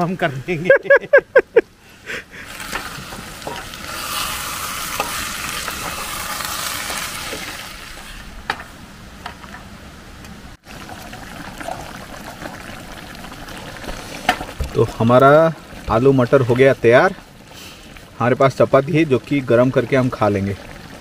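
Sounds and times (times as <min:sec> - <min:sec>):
curry sizzling in a pan: 0:02.4 - 0:08.2.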